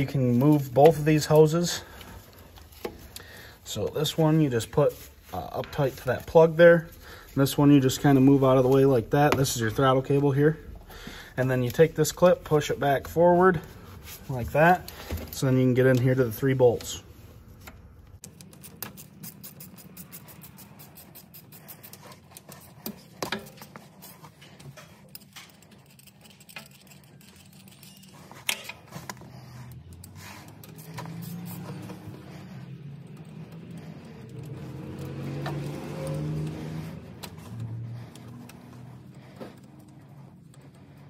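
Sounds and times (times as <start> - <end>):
ratchet clicks: 18.2 - 22.8, 24.7 - 29.2
metal clinks and knocks: 18.3 - 30.0.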